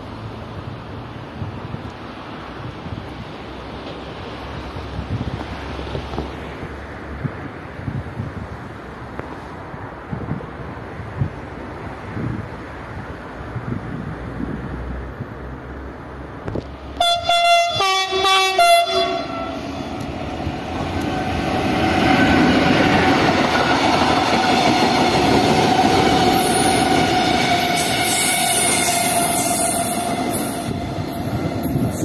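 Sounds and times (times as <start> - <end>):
train wheels rumbling on rails: 0.1 - 32.0
train horn blasts: 17.0 - 20.0, 26.3 - 32.0
high squeal: 26.0 - 32.0.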